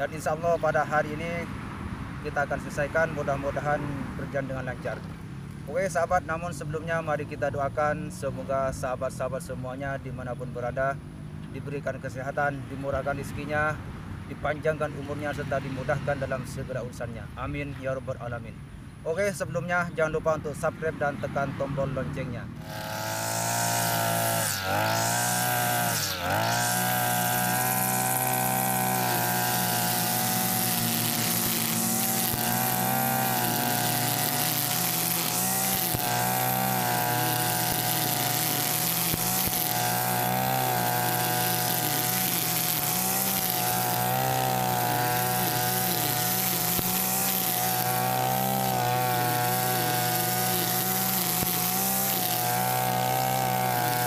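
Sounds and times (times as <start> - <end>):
line head cutting grass: 21.8 - 54.0
brush cutter engine running: 22.5 - 54.0.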